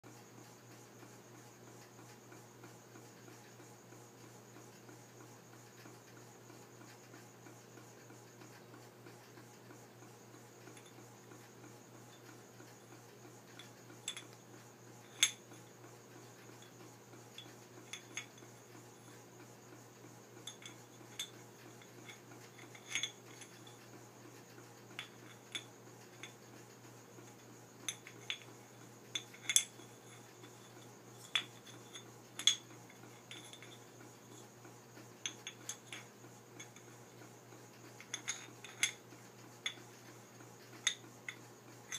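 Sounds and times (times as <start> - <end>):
faint low hum: 10.2 - 41.9.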